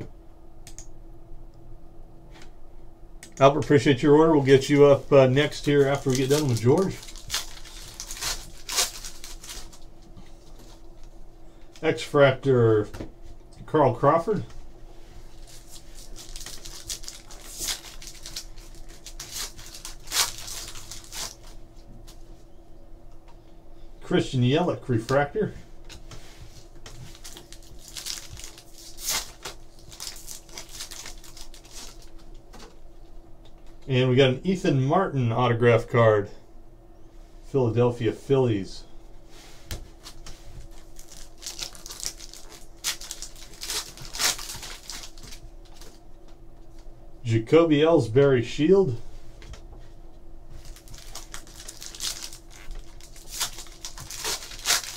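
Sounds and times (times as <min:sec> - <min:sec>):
foil wrapper tearing and crinkling: 0:04.6 - 0:09.9, 0:15.3 - 0:21.6, 0:26.9 - 0:32.2, 0:40.0 - 0:46.0, 0:50.6 - 0:54.9.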